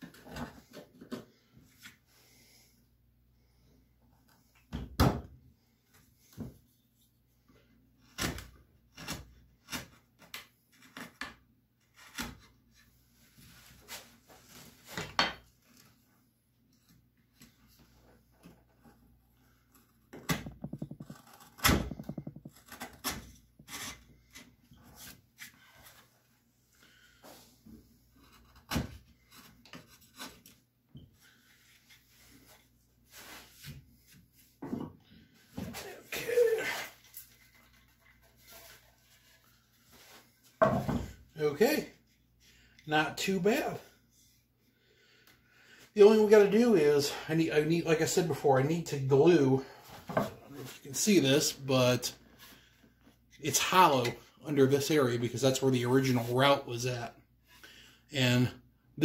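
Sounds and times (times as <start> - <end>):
chisel scraping wood: 20.7 - 24.5.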